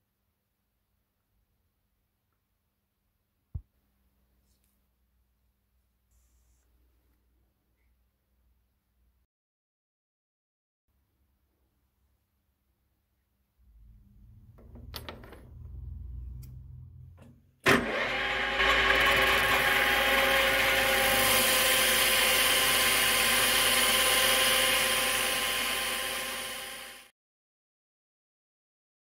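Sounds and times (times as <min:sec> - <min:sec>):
metal lathe cutting: 0:17.7 - 0:27.1.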